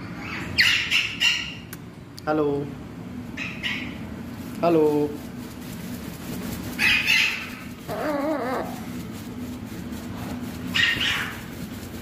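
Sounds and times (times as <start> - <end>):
macaws squawking: 6.8 - 8.8.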